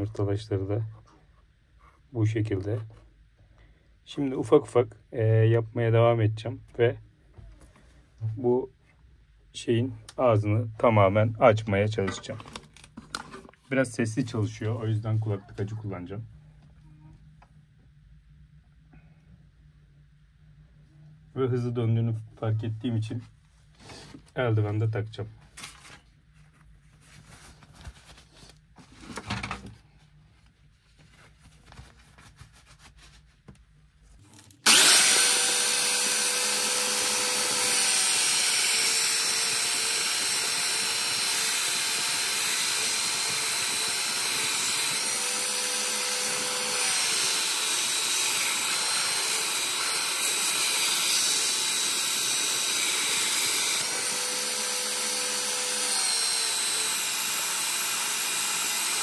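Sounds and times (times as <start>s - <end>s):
belt sander grinding steel: 34.6s - 59.0s.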